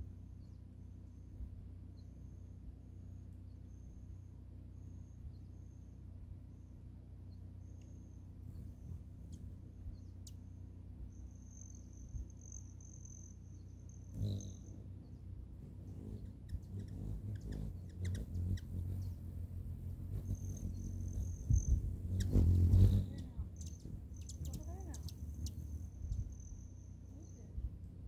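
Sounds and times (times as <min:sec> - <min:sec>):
hummingbird wing hum: 0:08.0 - 0:28.0
hummingbird chip notes: 0:11.2 - 0:28.0
thin high buzz: 0:11.3 - 0:27.9.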